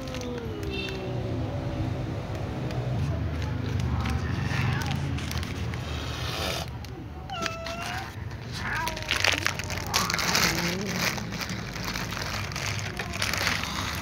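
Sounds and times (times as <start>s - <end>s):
cats meowing: 0.0s - 2.1s, 5.8s - 14.0s
rustling: 2.8s - 14.0s.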